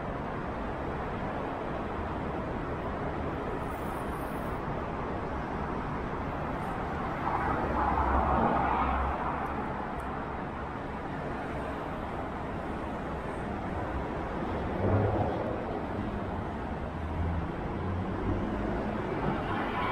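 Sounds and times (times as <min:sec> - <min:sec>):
road traffic noise: 0:00.0 - 0:19.9.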